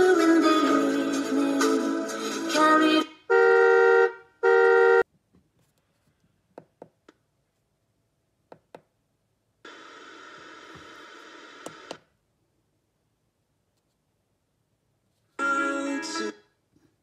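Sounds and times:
toy car horn beep: 0:03.3 - 0:05.0
radio static hiss: 0:09.7 - 0:12.0.

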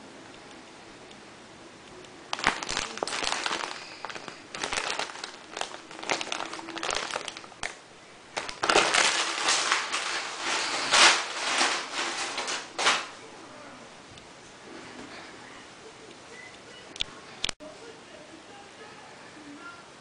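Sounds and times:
plastic mailer bag crinkling: 0:02.3 - 0:13.2.

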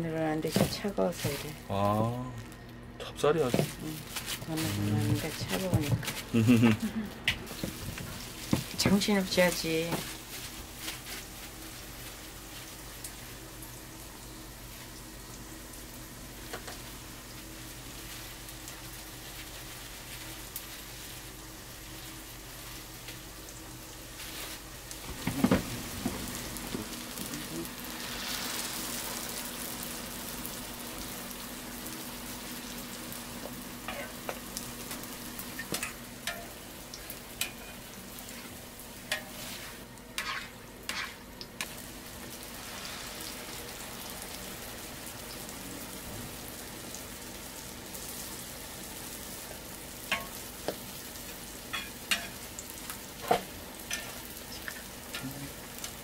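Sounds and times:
dough sizzling in hot oil: 0:03.4 - 0:56.0.

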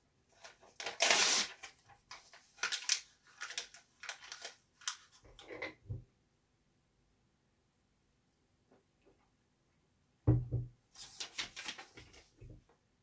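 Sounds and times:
paper crackling and crinkling: 0:00.4 - 0:05.2, 0:11.0 - 0:12.4
paper ripping: 0:00.8 - 0:01.8.

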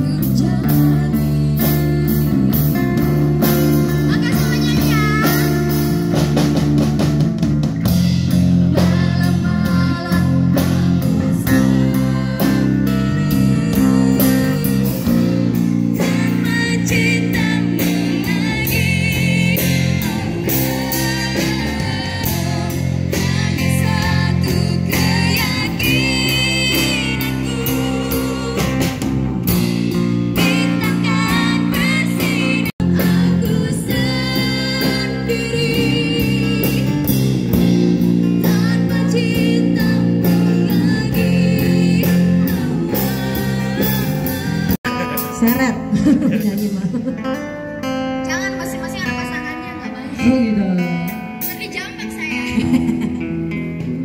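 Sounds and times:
woman singing: 0:00.0 - 0:02.8, 0:03.4 - 0:05.7, 0:08.6 - 0:29.1, 0:30.4 - 0:37.1, 0:38.4 - 0:44.8
live band music: 0:00.0 - 0:54.0.

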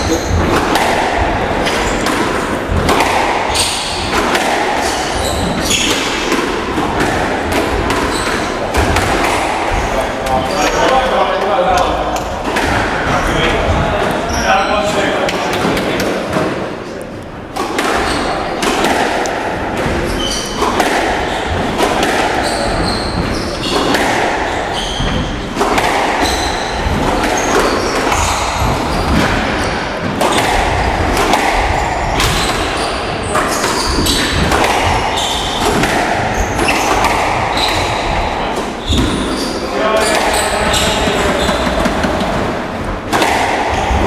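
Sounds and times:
shoes squeaking on wooden floor: 0:00.0 - 0:00.6, 0:01.6 - 0:04.2, 0:04.8 - 0:06.3, 0:07.9 - 0:08.8, 0:19.8 - 0:30.1, 0:31.6 - 0:42.7
squash ball cracking off rackets: 0:00.4 - 0:13.0, 0:17.5 - 0:39.4, 0:40.0 - 0:44.0.

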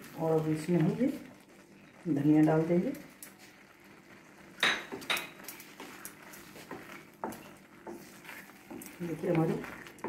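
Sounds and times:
wooden spatula stirring thick food: 0:00.0 - 0:10.0
spatula scraping and knocking pan: 0:04.6 - 0:10.0.

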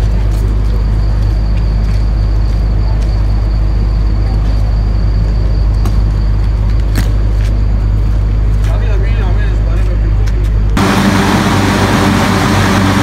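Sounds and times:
large engine droning: 0:00.0 - 0:13.0
high-pitched whine: 0:10.7 - 0:13.0.

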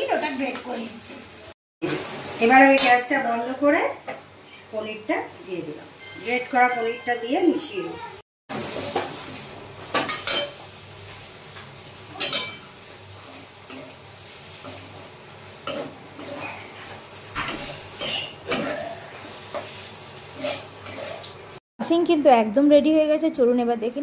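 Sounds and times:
metal spatula scraping metal pan: 0:20.4 - 0:21.3.

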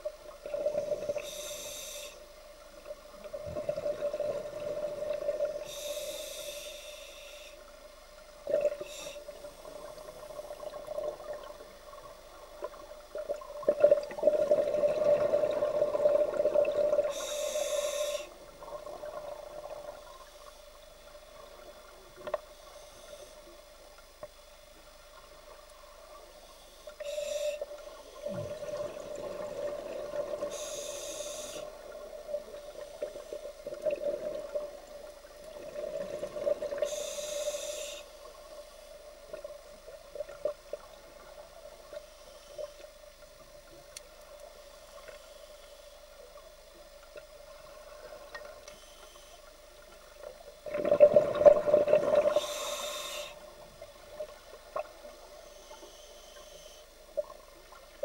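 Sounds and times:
regulator hiss on inhale: 0:00.0 - 0:13.4, 0:14.2 - 0:50.5, 0:51.4 - 0:57.4
exhaled bubbles gurgling: 0:03.2 - 0:05.9, 0:08.4 - 0:20.1, 0:27.8 - 0:37.3, 0:50.6 - 0:55.3.

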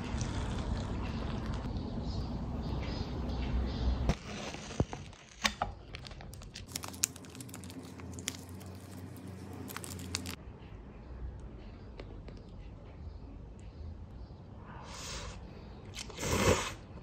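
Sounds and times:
packaging crinkling and tearing: 0:04.2 - 0:10.4.

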